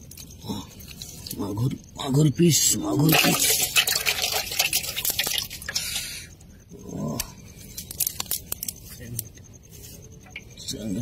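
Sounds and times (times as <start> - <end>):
fish splashing in metal basin: 2.9 - 6.2.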